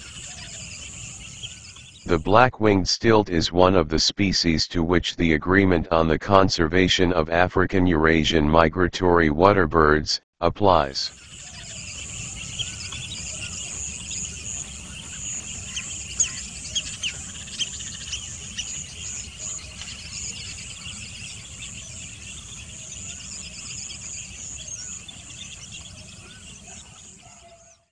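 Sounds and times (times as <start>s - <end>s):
insects trilling: 0.0s - 2.0s, 11.1s - 26.6s
bird chirps: 0.0s - 2.3s, 11.0s - 27.9s.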